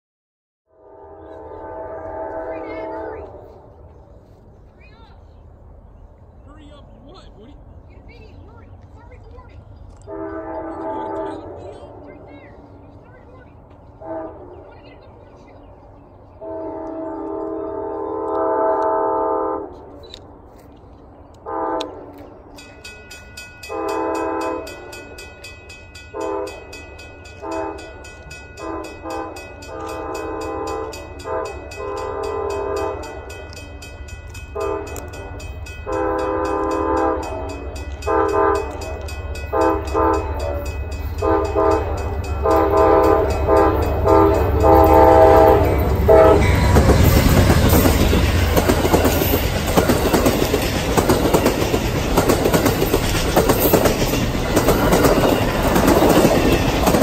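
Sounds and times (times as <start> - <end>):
locomotive horn blasts: 0.7 - 3.8, 10.0 - 12.2, 14.0 - 14.7, 16.4 - 19.9, 21.4 - 22.3, 23.7 - 25.1, 26.1 - 26.8, 27.4 - 28.0, 28.6 - 33.3, 34.5 - 47.3
train rumble: 0.7 - 57.0
crossing bell ringing: 22.4 - 57.0.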